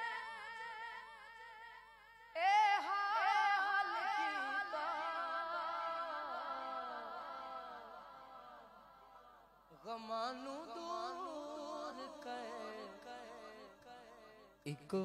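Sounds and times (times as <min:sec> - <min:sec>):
man singing unaccompanied: 0:02.4 - 0:08.0, 0:09.7 - 0:15.0.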